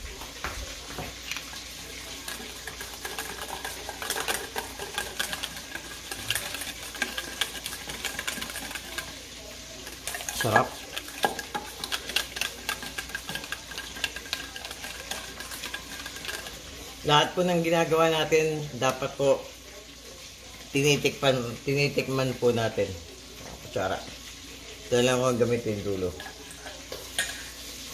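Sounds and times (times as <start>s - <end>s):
whisk beating in metal bowl: 0.9s - 19.4s.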